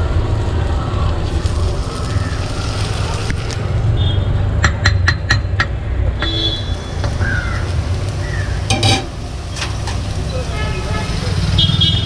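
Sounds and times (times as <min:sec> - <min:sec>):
steel spatula tapping on griddle: 0:04.6 - 0:07.4, 0:08.7 - 0:10.0.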